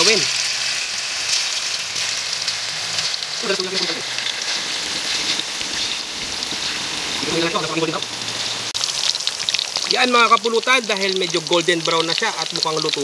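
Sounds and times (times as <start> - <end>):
meat deep-frying in hot oil: 0.0 - 13.0.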